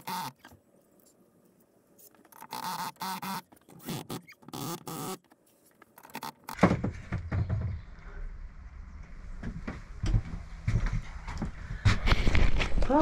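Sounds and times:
low rumbling and knocking: 6.6s - 12.1s.

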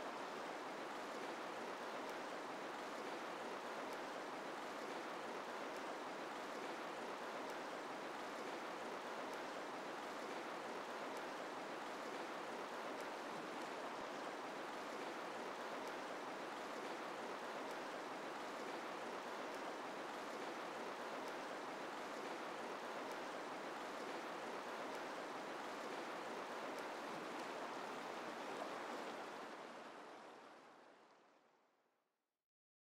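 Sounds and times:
flowing water rushing: 0.0s - 31.3s.

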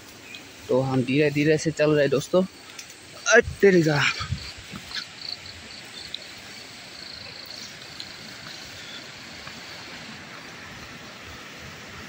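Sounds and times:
footsteps through tall grass: 3.8s - 11.6s.

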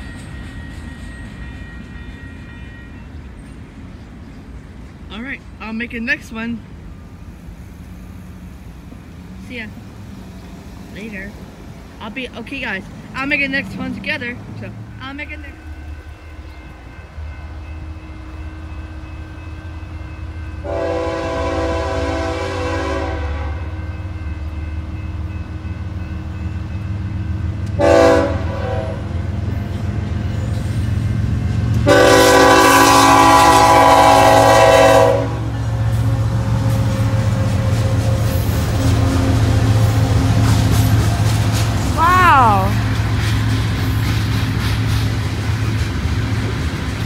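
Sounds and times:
locomotive rumble: 0.0s - 47.0s
locomotive air horn blasts: 20.6s - 23.7s, 27.8s - 29.2s, 31.8s - 37.7s.

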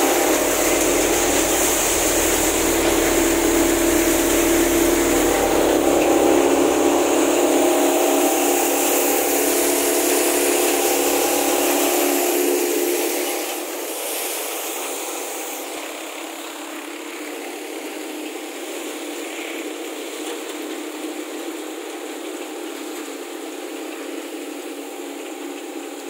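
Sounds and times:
threshing machine running: 0.0s - 19.4s.

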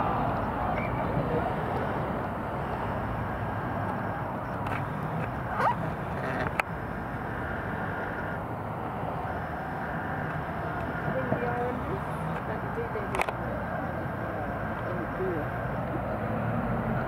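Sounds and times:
distant traffic: 0.0s - 17.0s
wind: 0.0s - 17.0s.

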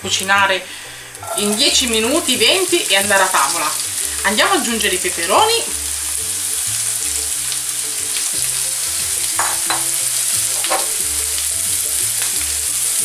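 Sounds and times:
peppers sizzling in a frying pan: 0.0s - 13.0s
scraping in a pan: 1.2s - 1.7s.

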